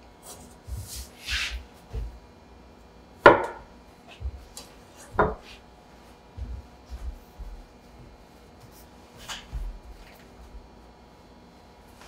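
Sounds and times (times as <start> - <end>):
brief scrape: 1.0 - 1.6
knife striking wooden table: 3.3 - 3.6.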